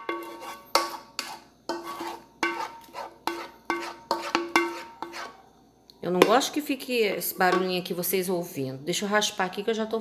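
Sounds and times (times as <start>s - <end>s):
metal pan knocking: 2.4s - 5.2s, 6.2s - 6.5s, 7.5s - 7.8s.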